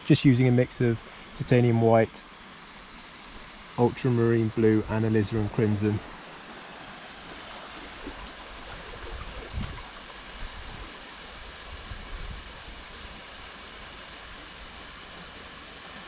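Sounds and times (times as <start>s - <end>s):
waterfall and stream rushing: 0.0s - 16.0s.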